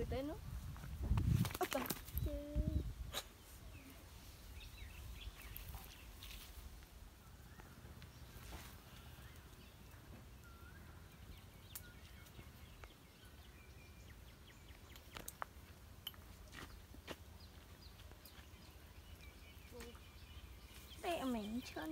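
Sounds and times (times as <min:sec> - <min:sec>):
faint bird chirps: 0:07.2 - 0:15.2, 0:17.9 - 0:21.9.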